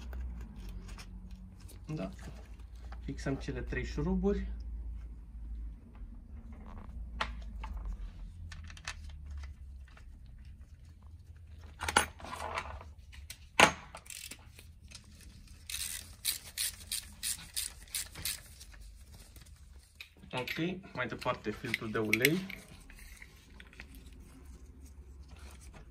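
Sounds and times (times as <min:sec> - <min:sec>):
socket tool ratcheting clicks: 0:14.0 - 0:14.6, 0:15.7 - 0:18.5.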